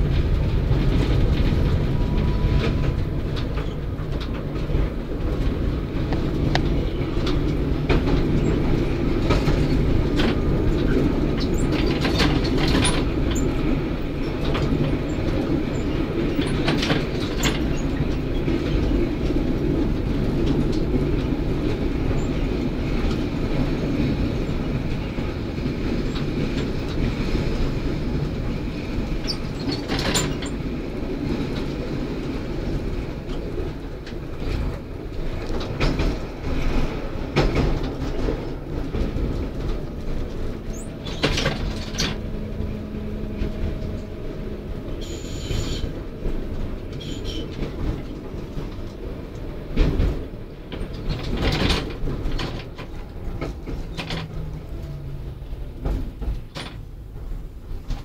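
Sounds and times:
tram rumble: 0.0s - 58.0s
wheels clacking over rail joints: 0.0s - 58.0s
high wheel squeals: 44.9s - 46.0s, 47.0s - 47.6s.

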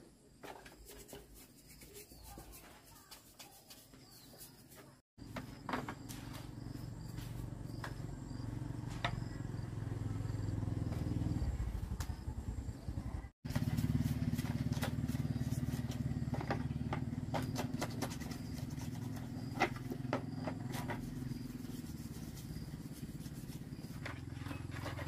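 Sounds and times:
plastic parts scraped and knocked: 0.3s - 6.2s, 14.4s - 21.8s, 23.7s - 25.0s
low engine-like hum: 6.2s - 25.0s.

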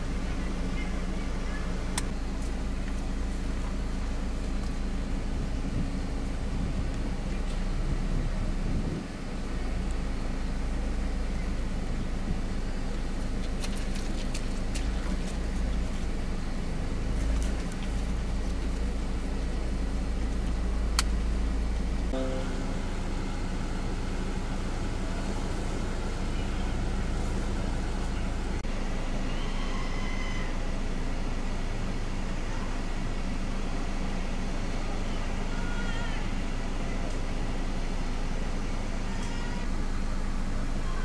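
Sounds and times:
vehicle engine idling: 0.0s - 41.0s
click: 21.0s - 21.2s.

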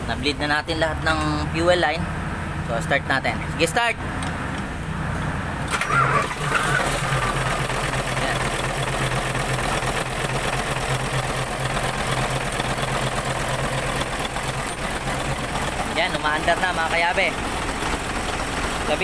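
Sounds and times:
diesel engine starting and idling: 4.4s - 19.0s.

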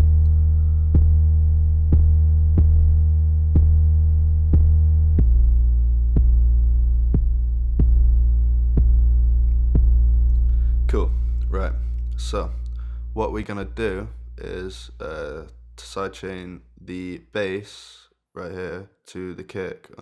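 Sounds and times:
deep bass notes: 0.0s - 17.5s
kick drum: 1.9s - 3.9s, 4.5s - 11.4s.

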